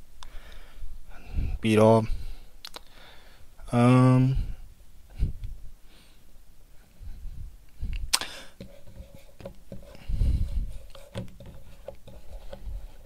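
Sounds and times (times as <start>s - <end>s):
chalk tapping and scraping on blackboard: 8.5s - 13.0s.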